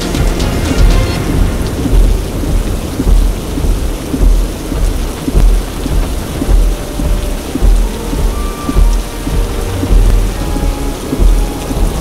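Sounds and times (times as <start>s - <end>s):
deep rumble: 0.0s - 12.0s
heavy rain on car roof: 0.0s - 12.0s.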